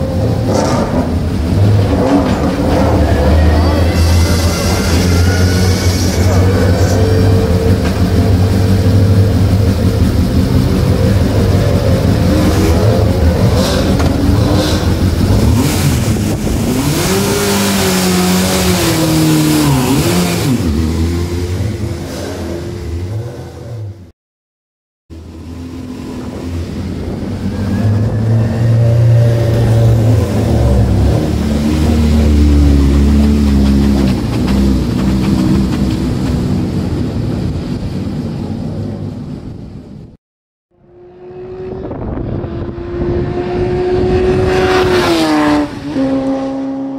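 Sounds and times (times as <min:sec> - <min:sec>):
motorcycle engine revving: 0:00.0 - 0:24.1, 0:40.8 - 0:46.9.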